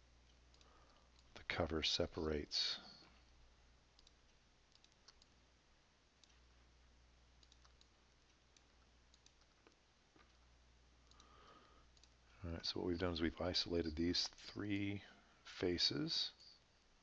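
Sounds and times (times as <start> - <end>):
low room hum: 0.0 - 17.0
computer mouse clicks: 0.3 - 1.4, 4.0 - 5.4, 7.4 - 10.4, 11.0 - 12.2.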